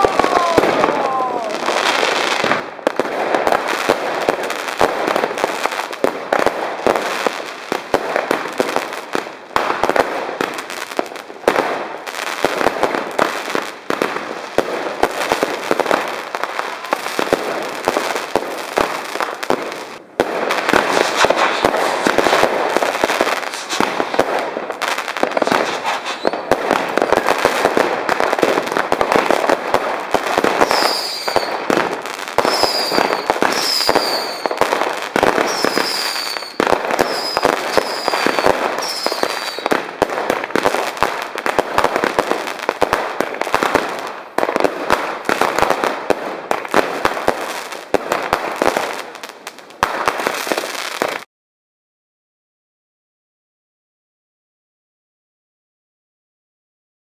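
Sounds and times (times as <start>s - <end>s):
fireworks bangs and crackling: 0.0s - 51.3s
short falling whistles: 25.9s - 26.5s, 32.5s - 34.6s, 35.5s - 39.6s.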